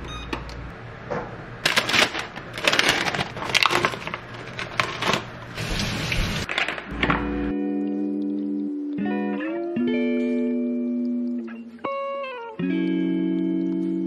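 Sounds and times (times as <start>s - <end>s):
plastic film crinkling: 1.6s - 5.6s.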